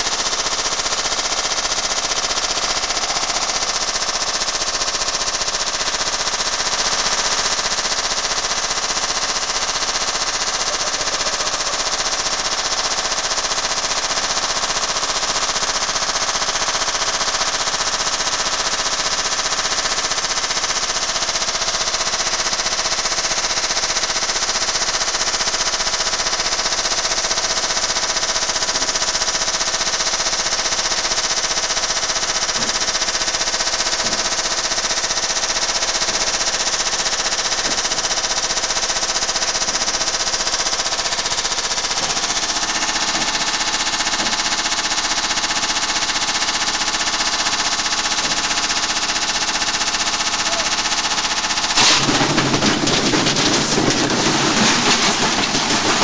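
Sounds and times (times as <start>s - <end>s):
washing machine spinning: 0.0s - 17.2s, 25.3s - 56.0s
rock clattering against drum: 51.8s - 56.0s.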